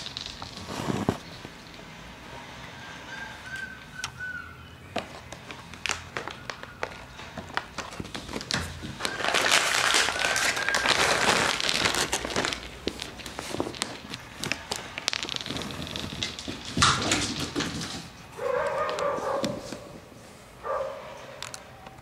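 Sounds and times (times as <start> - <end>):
loud crinkling rustle: 0.0 - 1.8, 5.0 - 20.0.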